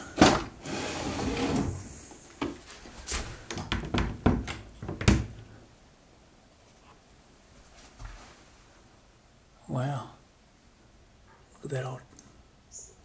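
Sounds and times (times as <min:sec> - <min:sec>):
drawer sliding shut: 0:00.0 - 0:01.9
cupboard door knocks and clacks: 0:03.6 - 0:05.4.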